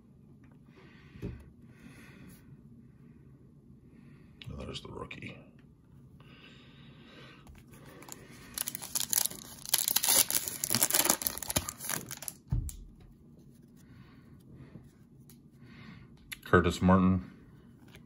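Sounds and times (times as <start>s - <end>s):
foil wrapper tearing and crinkling: 8.0s - 12.4s.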